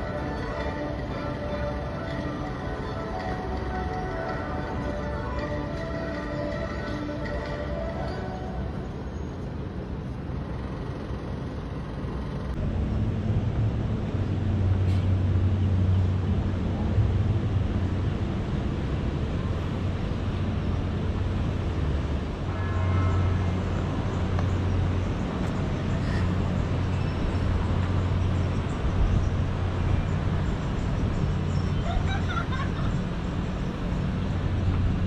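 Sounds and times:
moving vehicle rumble: 0:00.0 - 0:35.0.

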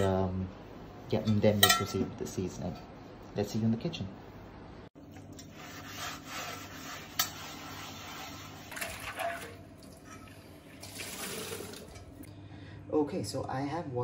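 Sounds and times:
sponge scrubbing a skillet: 0:05.4 - 0:09.5
tap water running: 0:08.6 - 0:12.3.

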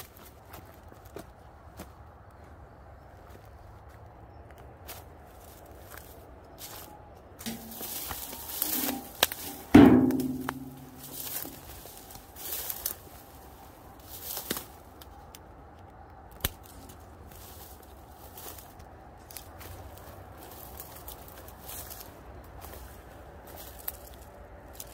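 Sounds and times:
footsteps through dry brush: 0:00.0 - 0:15.4, 0:16.3 - 0:24.9
loud sudden knock: 0:09.7 - 0:11.0
twig snapping: 0:14.2 - 0:17.0.

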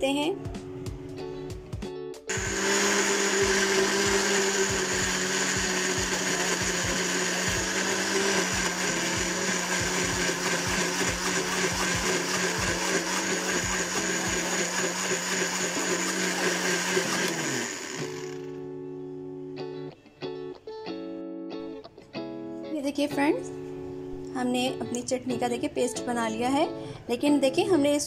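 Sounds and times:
blender motor winding down: 0:02.3 - 0:18.6
electric blender running: 0:02.3 - 0:18.6.

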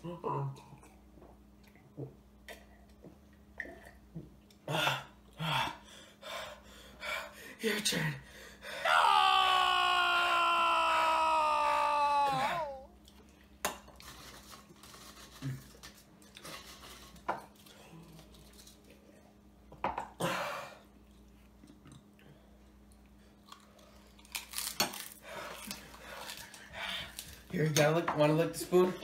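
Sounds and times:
child shouting: 0:08.9 - 0:12.9.

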